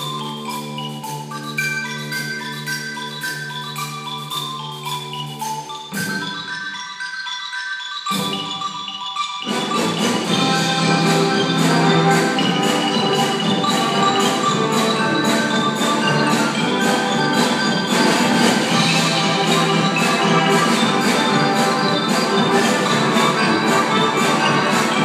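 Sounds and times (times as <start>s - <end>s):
xylophone notes: 0.0s - 25.0s
brass band playing: 9.5s - 25.0s.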